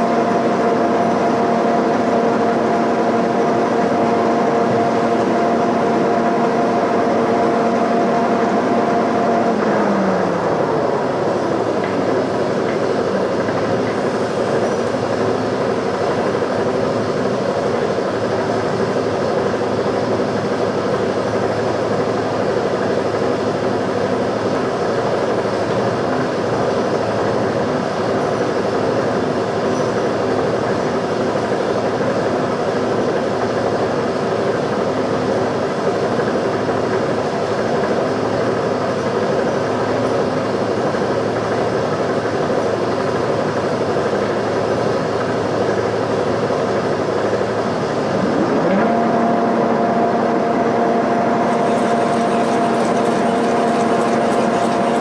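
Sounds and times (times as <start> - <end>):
milling machine humming: 45.3 - 55.0.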